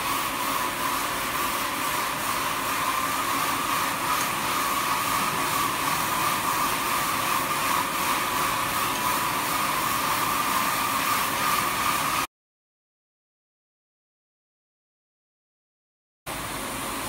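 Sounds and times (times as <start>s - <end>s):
deburring machine humming: 0.0s - 12.3s.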